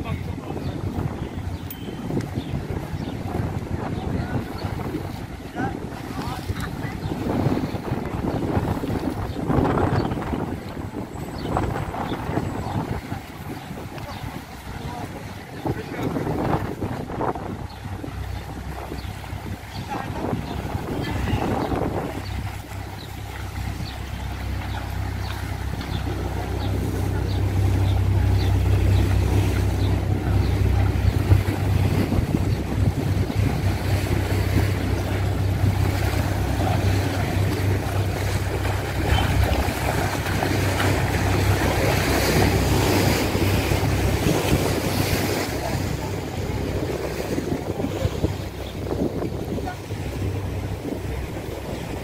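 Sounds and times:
sea slapping against seawall: 0.0 - 52.0
wind buffeting microphone: 0.0 - 52.0.

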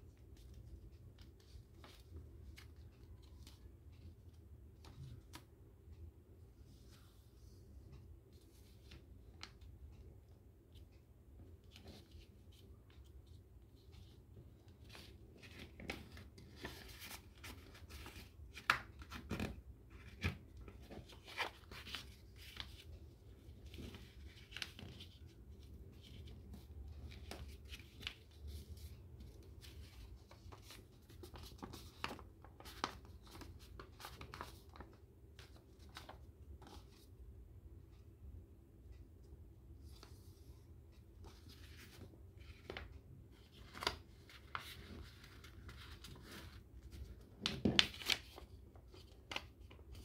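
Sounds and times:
paper rustling and crinkling: 11.6 - 37.1, 41.2 - 50.0.

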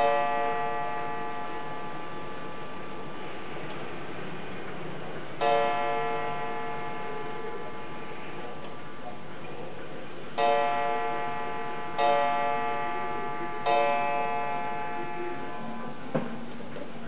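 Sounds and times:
wall clock striking: 0.0 - 2.5.

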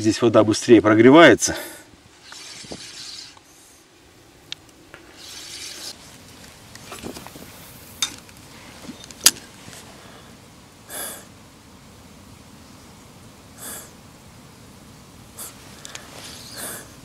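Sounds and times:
fishing reel winding: 2.2 - 3.4
reel and rod clicks: 2.2 - 3.5.

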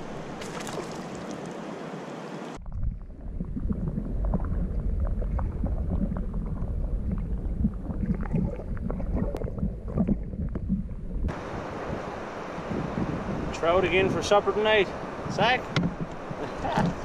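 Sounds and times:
water sloshing around canoe: 0.0 - 2.2
rushing water or wind: 0.0 - 2.6, 3.9 - 17.0
small splashes and knocks: 0.4 - 1.6
low rumble: 2.6 - 12.0.

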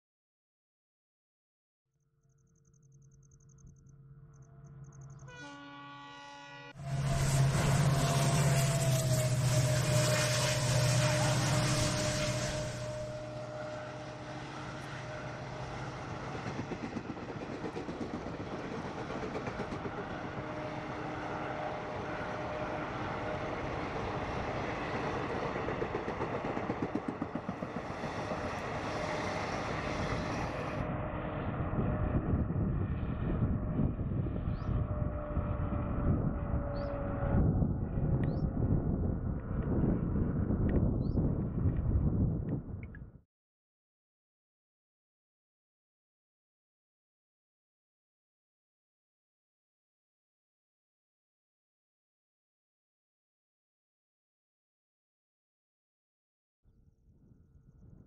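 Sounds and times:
locomotive horn: 5.2 - 15.9, 20.1 - 23.9, 34.7 - 38.1
locomotive engine running: 6.8 - 32.1
train coaches rumbling and clattering: 6.9 - 31.0.

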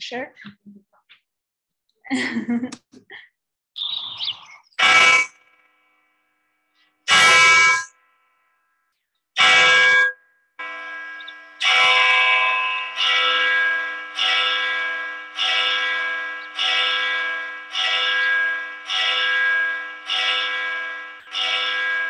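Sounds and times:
church bell ringing: 4.8 - 6.2, 6.8 - 8.4, 9.4 - 22.0.

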